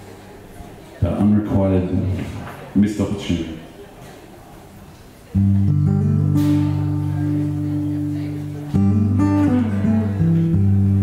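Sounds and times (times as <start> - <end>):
acoustic guitar chords strummed: 5.4 - 11.0.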